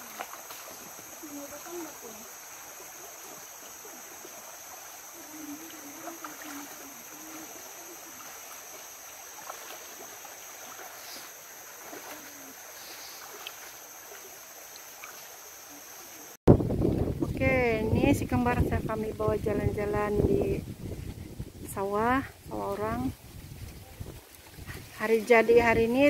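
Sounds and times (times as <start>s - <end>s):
feet wading through water: 0.0s - 16.4s, 22.4s - 26.0s
rocky stream flowing: 0.0s - 16.4s.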